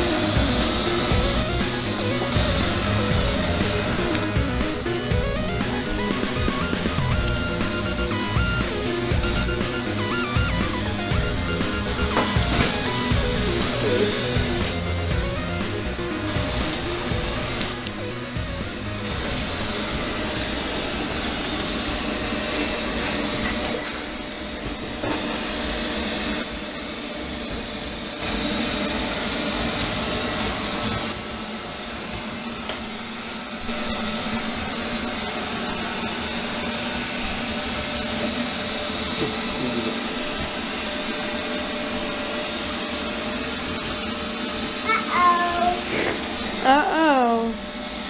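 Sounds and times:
robot vacuum whirring: 0.0s - 48.0s.

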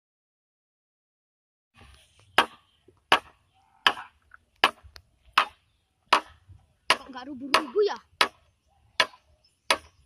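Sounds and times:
machete chopping bamboo: 2.4s - 8.4s, 9.0s - 10.0s.

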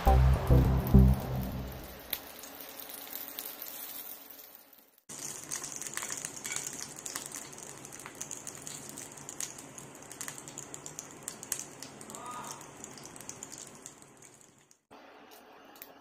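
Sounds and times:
oil sizzling in a frying pan: 0.1s - 14.9s
crackling pops: 5.0s - 14.9s.

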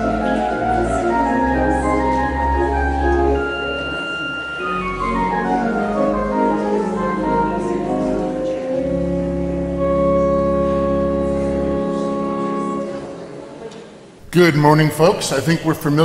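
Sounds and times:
church organ playing: 0.0s - 13.6s.

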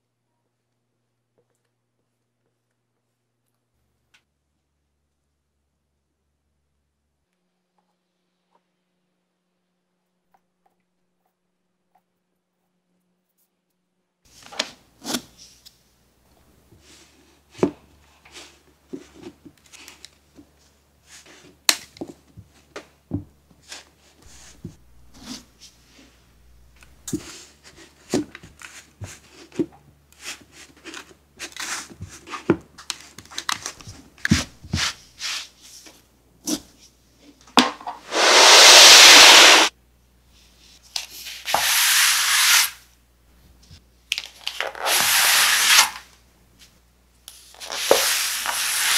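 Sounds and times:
sand rubbing hiss: 38.0s - 39.7s, 41.3s - 42.8s, 44.7s - 46.0s, 47.4s - 48.9s.

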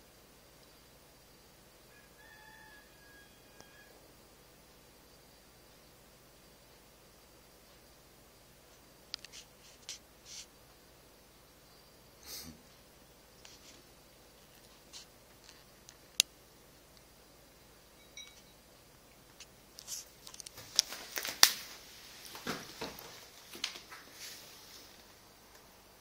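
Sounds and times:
rustling: 8.6s - 10.6s, 13.4s - 16.3s, 19.3s - 25.2s.

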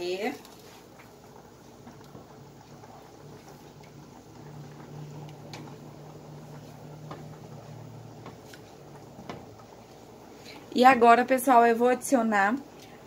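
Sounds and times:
low steady hum: 0.0s - 13.0s
spoon stirring sauce in pan: 0.4s - 10.6s.

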